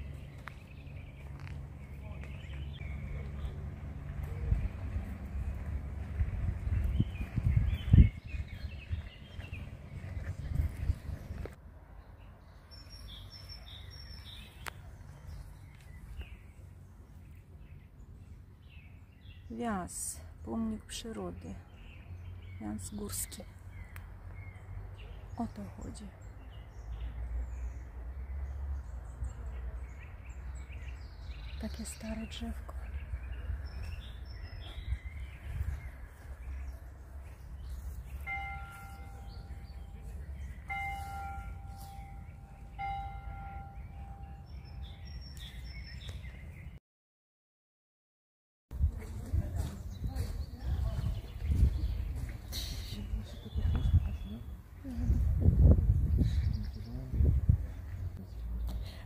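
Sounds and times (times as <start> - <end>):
low rumble: 0.0 - 11.6
birds calling: 0.0 - 46.8, 49.7 - 59.0
wind rumble on microphone: 2.4 - 11.6, 32.8 - 38.4, 48.7 - 58.6
bird singing high notes: 38.2 - 46.6
steady multi-pitch tone: 38.4 - 44.8.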